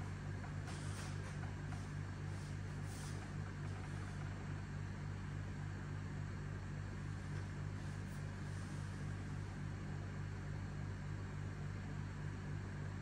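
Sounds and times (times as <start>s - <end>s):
steady low hum: 0.0s - 13.0s
faint rustles: 0.5s - 4.4s.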